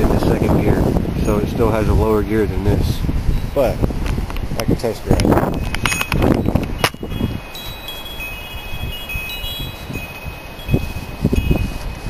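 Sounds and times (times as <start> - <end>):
wind rumbling on microphone: 0.0 - 12.0
wind chimes ringing: 1.1 - 3.9, 5.3 - 12.0.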